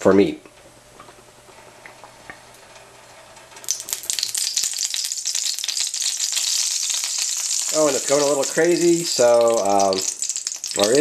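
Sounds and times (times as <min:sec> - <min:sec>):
oil crackling and sizzling: 0:01.1 - 0:11.0
oil pouring: 0:03.7 - 0:11.0.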